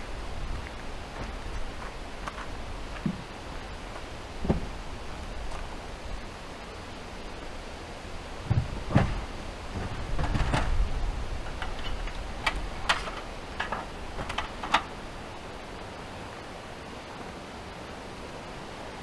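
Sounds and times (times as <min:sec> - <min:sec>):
steady hiss: 0:00.0 - 0:19.0
sharp clicks and knocks: 0:09.8 - 0:10.8, 0:11.4 - 0:14.9.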